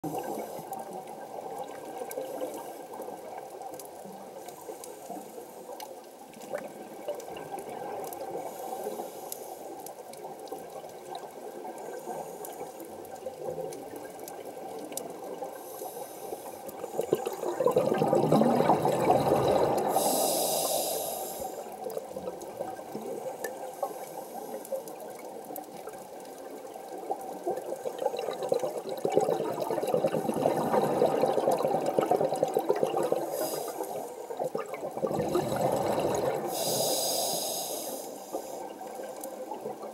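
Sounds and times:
underwater water wash: 0.0 - 39.9
scuba regulator bubbles: 6.3 - 39.9.

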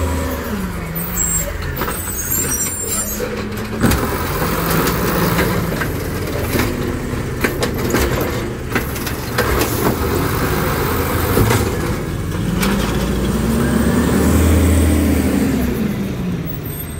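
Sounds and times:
truck engine running: 0.0 - 16.9
recyclables clattering into hopper: 3.2 - 10.3.

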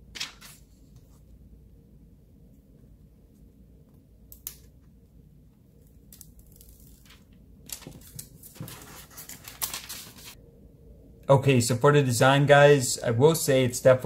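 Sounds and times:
plastic film peeling: 5.8 - 10.4.

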